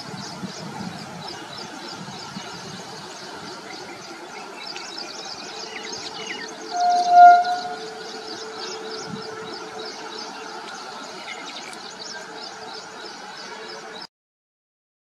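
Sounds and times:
train mechanical drone: 0:00.0 - 0:14.0
small birds chirping: 0:00.0 - 0:14.1
horn-like tone: 0:06.0 - 0:11.0.

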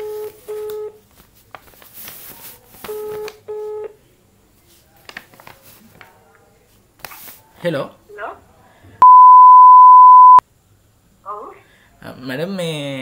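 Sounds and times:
telephone ringback tone: 0:09.0 - 0:10.4.

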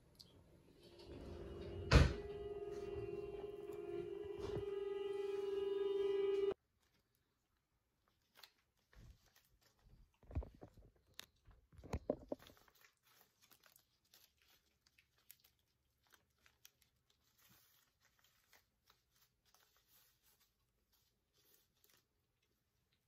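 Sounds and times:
paper money crinkling: 0:06.7 - 0:23.0.

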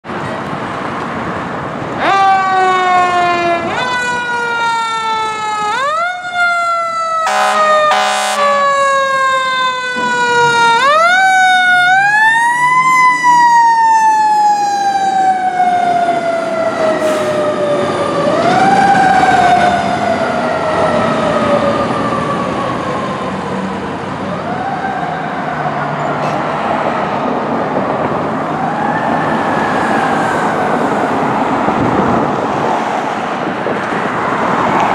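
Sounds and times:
fire engine mechanical siren wailing: 0:02.0 - 0:26.2, 0:28.2 - 0:32.2
air horn blasts: 0:07.2 - 0:08.6.

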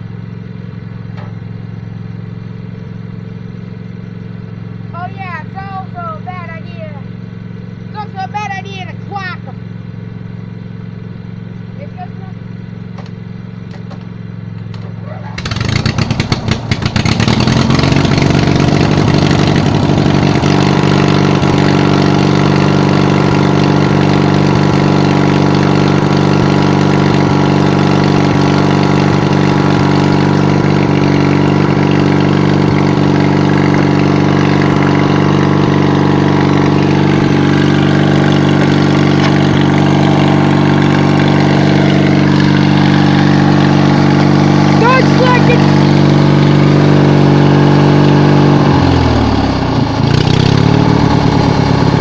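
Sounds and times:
riding mower engine starting: 0:00.0 - 0:52.0.

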